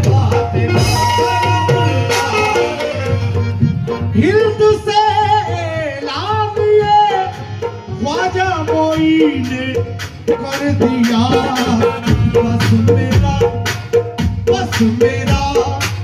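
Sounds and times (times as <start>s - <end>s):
drum beat: 0.0s - 16.0s
harmonium: 0.0s - 16.0s
male voices singing: 4.2s - 13.9s.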